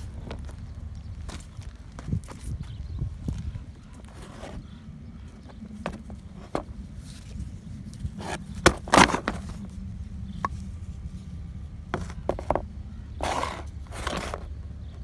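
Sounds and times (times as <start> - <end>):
steady low rumble: 0.0 - 15.0
rustling scrapes: 3.9 - 4.8, 5.7 - 9.8, 11.9 - 14.5
plastic parts clicking and knocking: 12.0 - 12.6.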